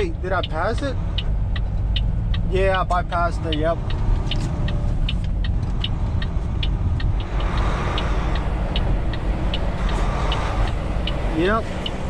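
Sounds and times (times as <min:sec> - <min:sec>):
truck engine running: 0:00.0 - 0:12.0
turn signal ticking: 0:00.0 - 0:12.0.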